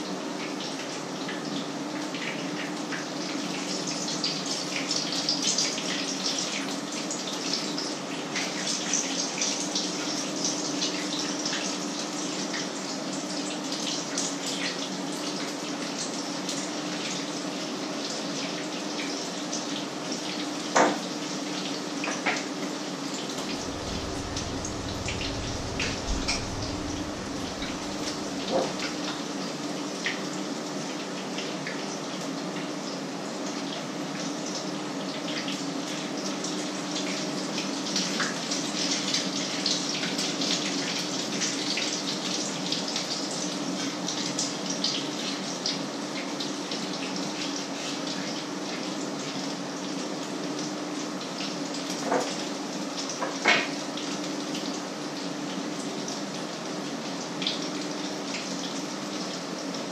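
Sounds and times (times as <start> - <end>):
steady low hum: 23.3 - 29.1.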